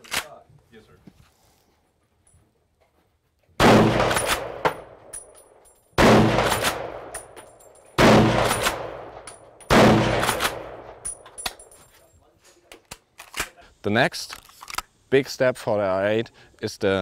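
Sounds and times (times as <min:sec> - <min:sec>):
rifle shots echoing: 0:03.6 - 0:05.3, 0:06.0 - 0:11.2
rifle bolt clacking: 0:06.4 - 0:11.8.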